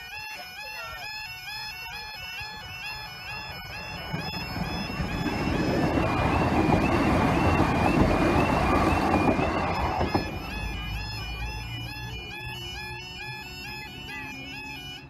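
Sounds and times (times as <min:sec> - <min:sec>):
level crossing warbling alarm: 0:00.0 - 0:15.0
passenger train rushing past: 0:02.7 - 0:12.3.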